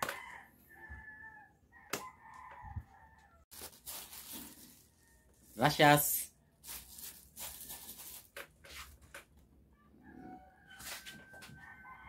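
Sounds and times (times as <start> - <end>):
rooster crowing: 0.0 - 3.4, 9.8 - 12.0
plastic bags rustling: 3.5 - 9.2.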